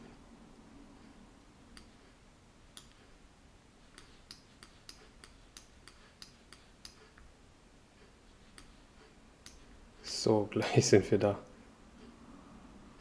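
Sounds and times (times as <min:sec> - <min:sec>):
computer mouse clicks: 0:03.9 - 0:07.2.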